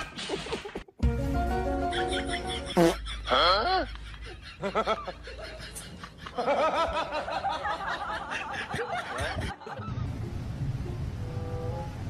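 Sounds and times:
person snickering: 0:01.9 - 0:06.9.

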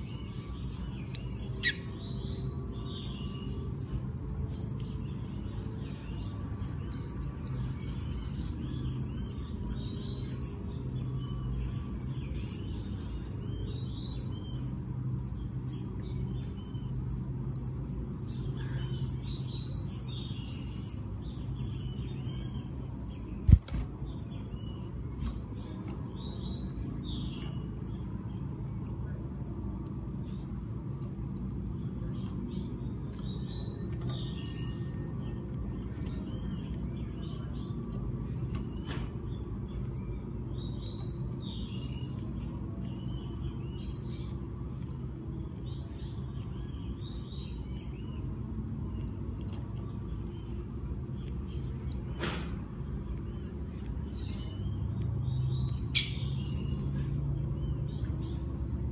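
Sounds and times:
low hum: 0:00.0 - 0:58.9
nestlings cheeping: 0:00.0 - 0:58.9.

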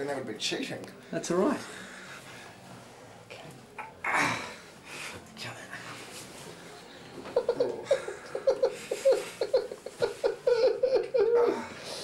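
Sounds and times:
person laughing: 0:07.4 - 0:11.6.

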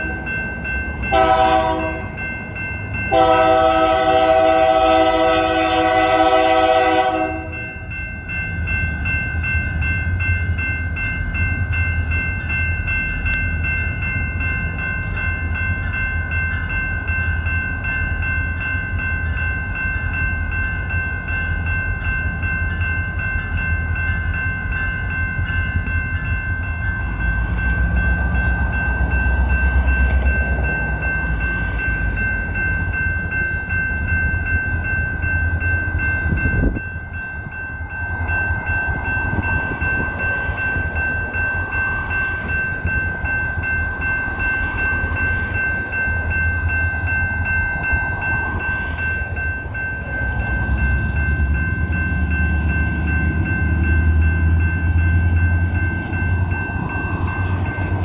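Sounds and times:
crossing bells ringing: 0:00.0 - 0:58.0
locomotive air horn blast: 0:01.1 - 0:02.0, 0:03.1 - 0:07.6.

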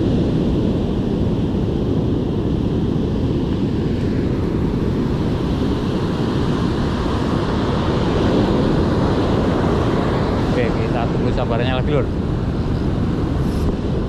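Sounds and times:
wind buffeting microphone: 0:00.0 - 0:14.0
heavy surf breaking: 0:03.5 - 0:14.0.

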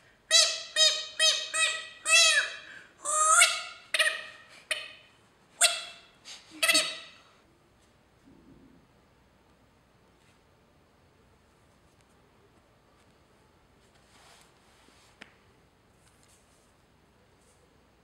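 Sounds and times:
squeeze noisemaker squeaking: 0:00.3 - 0:04.5.

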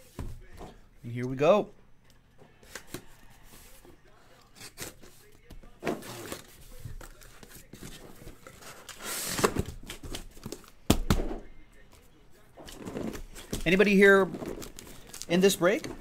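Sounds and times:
cardboard tearing: 0:05.9 - 0:10.8, 0:12.6 - 0:16.0.

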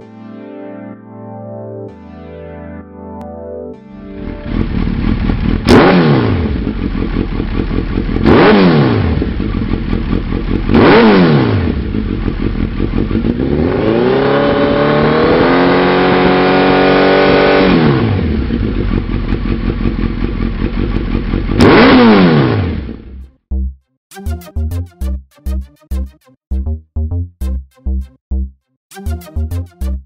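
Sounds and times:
motorcycle engine revving: 0:04.1 - 0:23.2.

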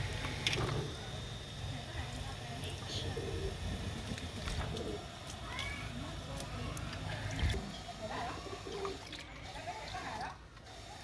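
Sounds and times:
birds cooing: 0:02.9 - 0:03.7, 0:04.4 - 0:05.1, 0:08.2 - 0:09.2.

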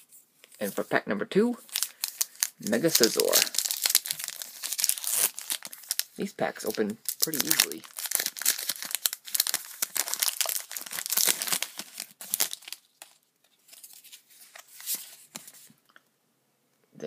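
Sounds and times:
foil wrapper tearing and crinkling: 0:01.6 - 0:13.2
cards and wrapper rustling: 0:01.6 - 0:15.7.

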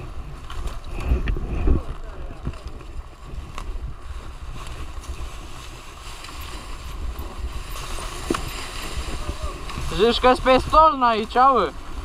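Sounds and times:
wind on microphone: 0:00.0 - 0:12.0
bike knocking over rough ground: 0:06.2 - 0:11.4.

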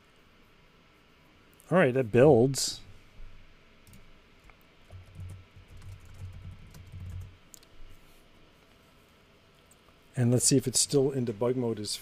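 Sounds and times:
keyboard typing: 0:04.9 - 0:07.7.

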